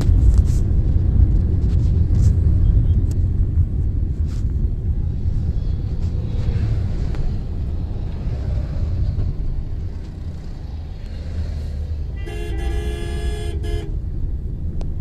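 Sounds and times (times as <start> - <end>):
vehicle horn: 12.1 - 14.0.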